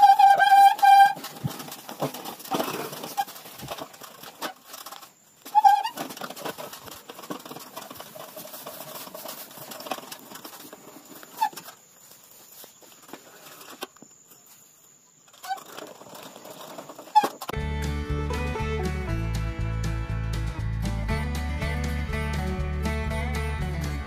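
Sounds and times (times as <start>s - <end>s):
rustling: 0.0s - 17.6s.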